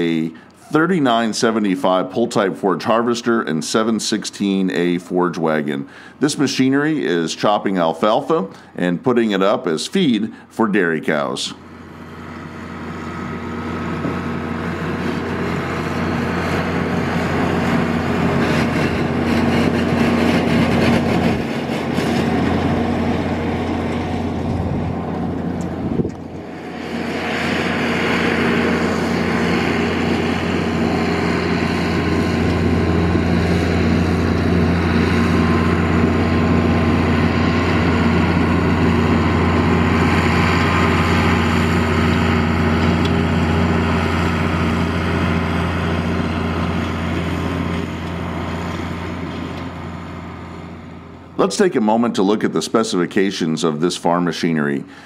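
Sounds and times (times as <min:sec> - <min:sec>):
forage harvester whirring: 0:00.0 - 0:55.0
tractor diesel engine drone: 0:00.0 - 0:55.0.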